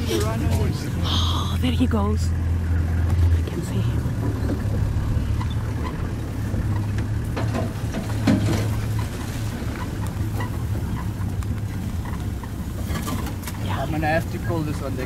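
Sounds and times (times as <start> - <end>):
vehicle engine idling: 0.0 - 15.0.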